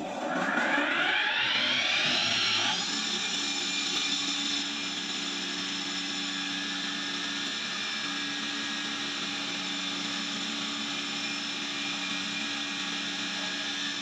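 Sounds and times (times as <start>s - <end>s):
electric flour mill whining: 0.0s - 14.0s.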